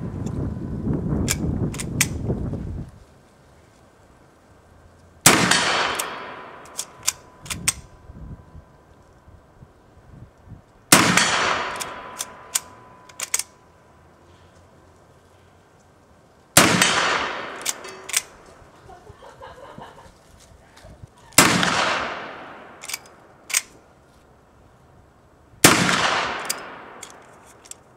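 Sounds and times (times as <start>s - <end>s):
rifle lever clicks: 1.2s - 2.2s, 5.9s - 7.9s, 11.7s - 13.5s, 17.0s - 18.4s, 22.8s - 23.8s, 26.1s - 27.9s
rifle shots with echo: 5.2s - 7.8s, 10.9s - 13.5s, 16.6s - 18.4s, 21.4s - 23.7s, 25.6s - 27.4s.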